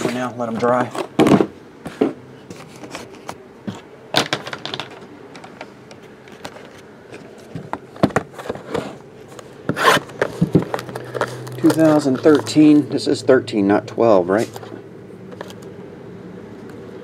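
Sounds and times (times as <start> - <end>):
shrink-wrap rustling: 6.4 - 13.0
boxes knocking on a table: 10.2 - 10.9.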